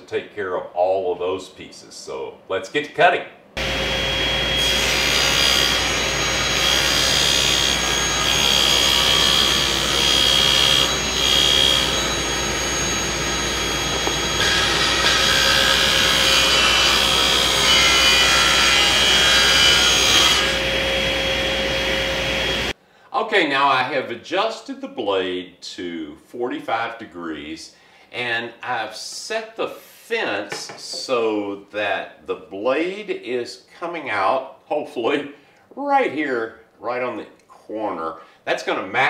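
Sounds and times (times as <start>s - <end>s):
table saw cutting plywood: 3.6s - 22.7s.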